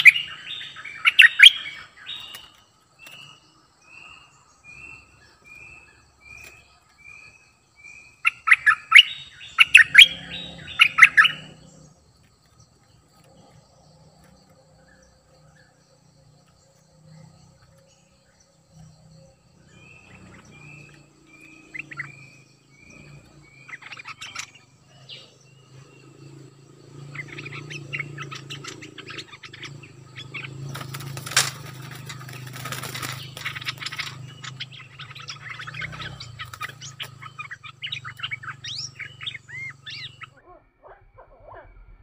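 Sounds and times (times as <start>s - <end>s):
birds whistling and chattering: 0.0s - 42.0s
rustling and fluttering: 30.5s - 34.6s.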